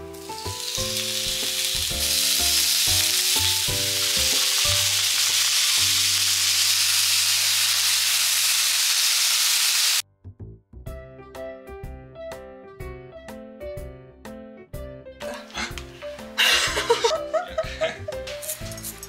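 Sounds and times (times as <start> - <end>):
background music sustained notes: 0.0 - 6.6, 10.1 - 19.0
meat sizzling on a grill pan: 0.0 - 10.0.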